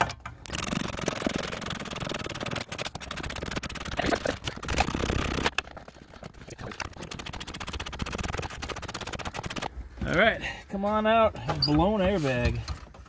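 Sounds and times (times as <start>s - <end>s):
hand ratchet clicking: 0.5s - 5.6s.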